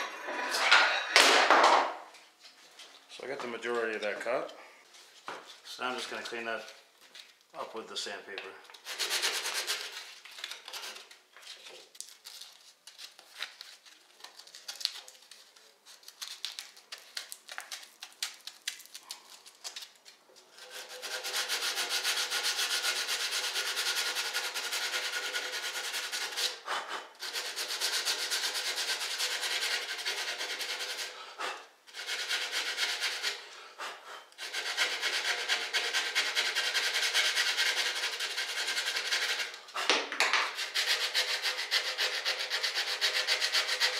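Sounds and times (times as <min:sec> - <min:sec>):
sandpaper sanding wood: 0:08.8 - 0:10.2, 0:20.6 - 0:33.5, 0:34.4 - 0:39.9, 0:40.5 - 0:43.9.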